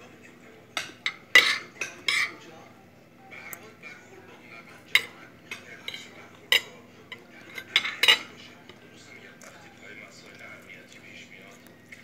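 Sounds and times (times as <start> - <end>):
cutlery clinking on a plate: 0.8 - 2.4, 4.9 - 9.6.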